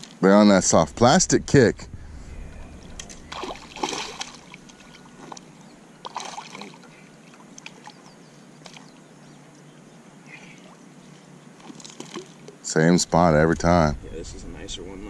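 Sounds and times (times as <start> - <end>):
fish thrashing in water: 2.9 - 6.8, 11.6 - 12.5.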